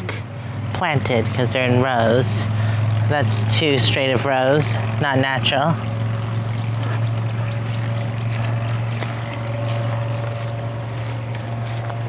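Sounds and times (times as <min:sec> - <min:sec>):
low mechanical drone: 0:00.0 - 0:12.0.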